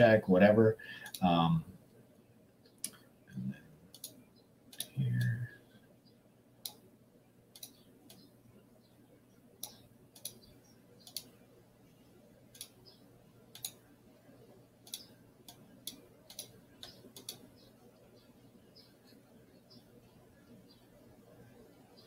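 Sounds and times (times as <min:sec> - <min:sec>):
faint steady hum: 0:00.0 - 0:22.0
computer mouse clicking: 0:01.0 - 0:01.3, 0:03.9 - 0:05.3, 0:06.6 - 0:06.8, 0:07.5 - 0:08.3, 0:09.6 - 0:11.4, 0:12.5 - 0:13.8, 0:14.8 - 0:17.7.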